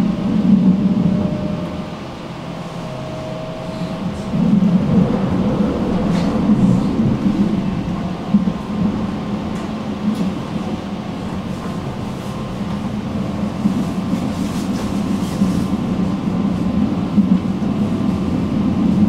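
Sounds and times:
tram rumbling on rails: 0:00.0 - 0:19.0.

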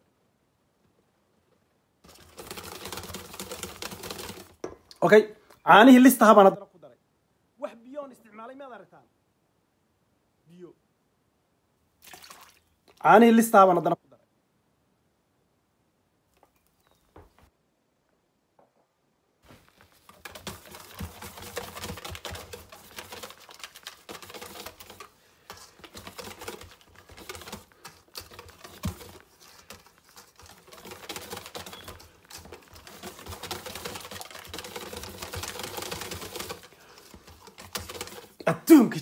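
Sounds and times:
whisk clicking in metal bowl: 0:02.1 - 0:04.6, 0:20.1 - 0:38.4.

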